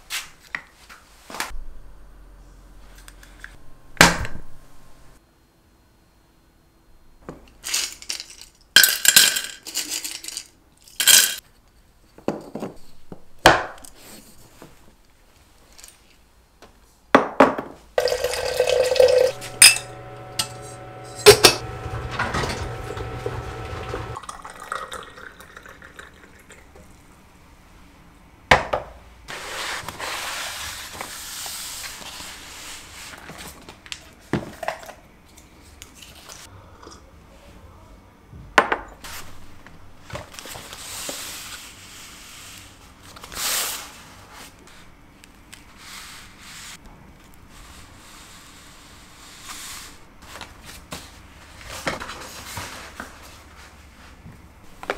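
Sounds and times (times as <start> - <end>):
steady hum: 1.6 - 5.2, 18.0 - 24.6
liquid pouring: 18.0 - 19.8, 22.2 - 27.0
glass clinking: 18.0 - 21.6.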